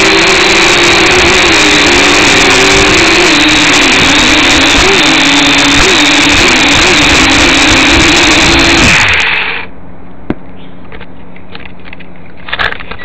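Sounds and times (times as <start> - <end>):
drone propellers buzzing: 0.0 - 9.7.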